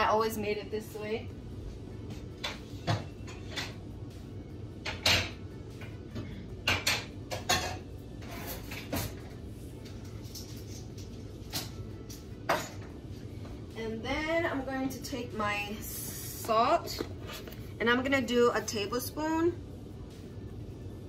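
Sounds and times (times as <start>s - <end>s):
steady low hum: 0.0s - 21.0s
kitchen items knocking and clicking: 6.2s - 7.8s, 10.3s - 12.9s.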